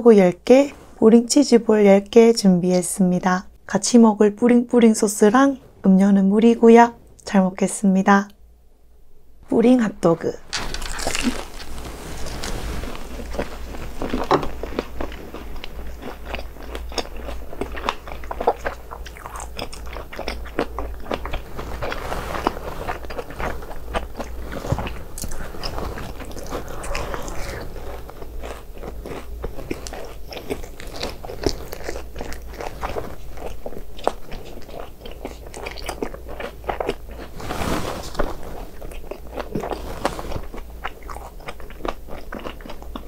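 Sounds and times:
crunching and chewing food: 10.5 - 43.0.

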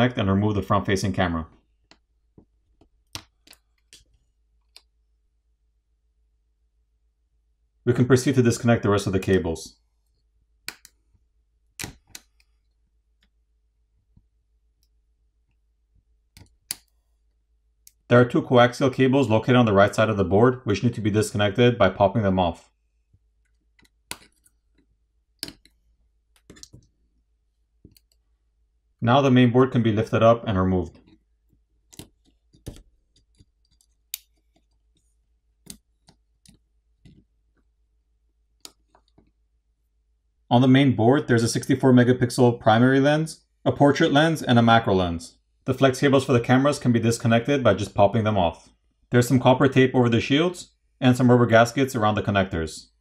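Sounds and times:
fingers clicking and tapping circuit board: 2.7 - 4.9, 10.6 - 11.0, 11.7 - 12.6, 23.4 - 26.9
cable connectors clicking off: 16.3 - 17.0, 25.4 - 26.9.

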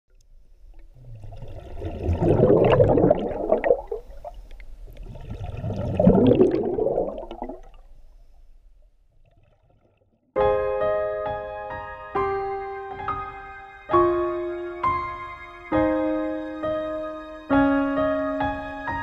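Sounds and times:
bubbling water: 0.8 - 7.9, 9.2 - 10.1.

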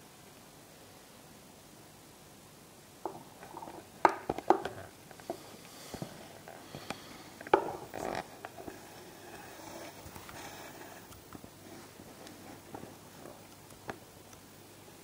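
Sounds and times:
soft rustling: 3.0 - 14.1.

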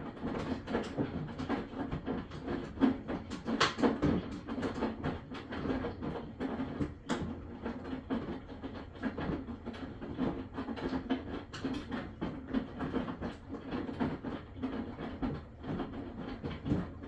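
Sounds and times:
washing machine churning: 0.0 - 17.0.

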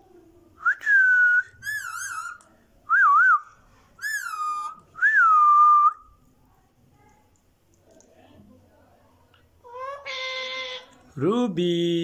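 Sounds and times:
parakeet whistling: 1.5 - 2.4, 4.0 - 4.8.

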